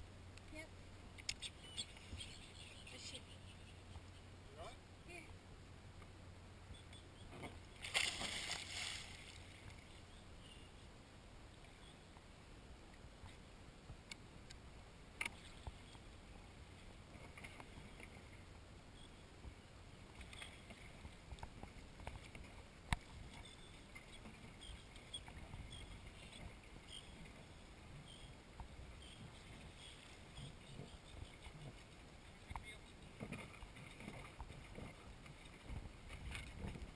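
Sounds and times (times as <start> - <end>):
person splashing into sea: 7.8 - 9.3
small ticks: 28.0 - 35.0
water lapping against plastic hull: 29.0 - 36.9.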